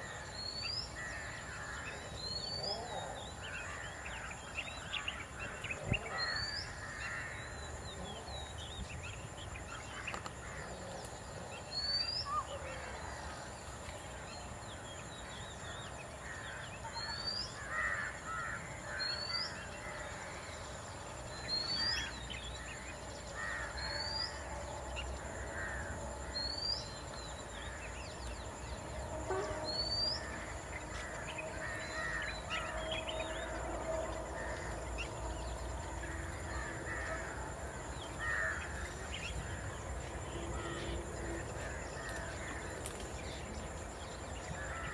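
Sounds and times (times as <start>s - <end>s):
harsh cawing bird calls: 3.5s - 7.6s, 16.2s - 20.3s, 23.4s - 24.4s, 29.2s - 33.6s, 38.1s - 39.6s.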